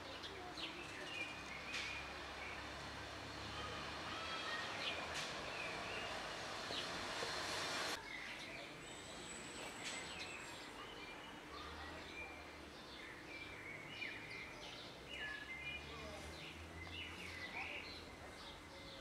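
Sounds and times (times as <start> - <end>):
small birds chirping: 0.0 - 7.0, 7.9 - 19.0
loud rushing noise: 4.8 - 8.0.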